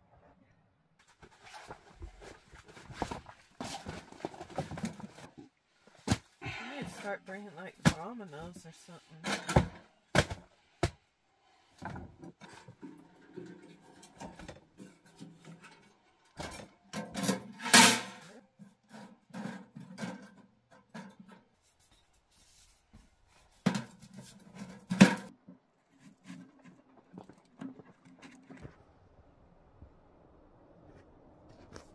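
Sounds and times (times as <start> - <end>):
stove pipe scraping: 21.0 - 28.7.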